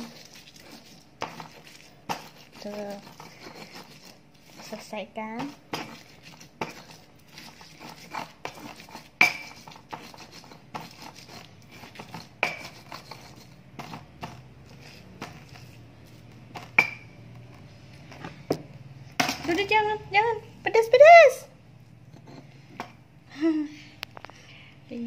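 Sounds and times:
stone pestle grinding in mortar: 0.0s - 17.1s.

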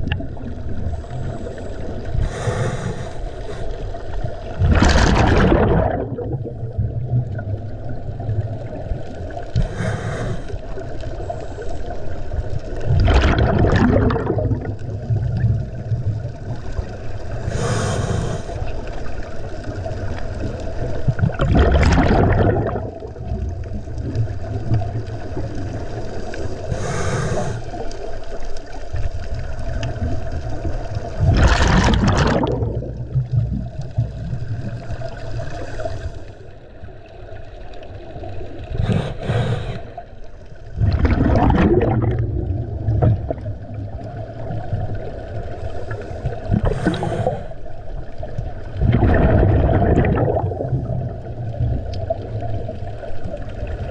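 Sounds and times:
gurgling exhaled bubbles: 0.0s - 53.9s
regulator inhalation hiss: 2.2s - 3.9s, 9.6s - 10.6s, 17.5s - 18.7s, 26.7s - 27.8s, 38.8s - 40.0s.

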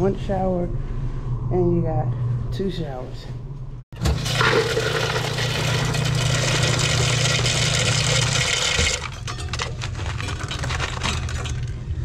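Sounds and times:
ice dispenser motor humming: 4.0s - 11.8s
ice cubes rattling into cup: 4.2s - 11.8s.

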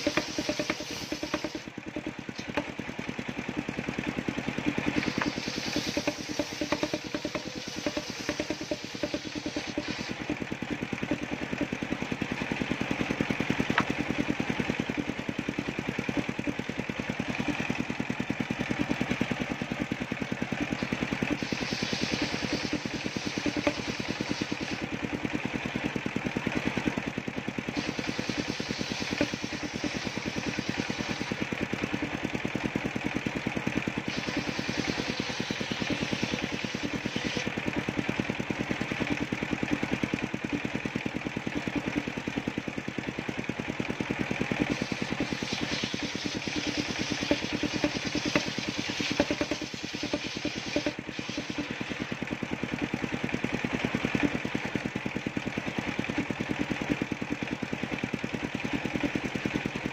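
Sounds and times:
saw blade rasping through timber: 0.0s - 2.7s, 4.6s - 12.4s, 20.6s - 25.6s, 27.6s - 32.1s, 34.0s - 37.8s, 44.6s - 52.4s
sawmill engine throbbing: 0.0s - 59.9s.

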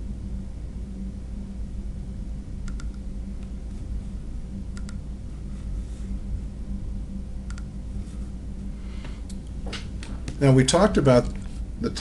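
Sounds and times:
steady low hum: 0.0s - 12.0s
computer mouse double clicks: 2.6s - 3.0s.

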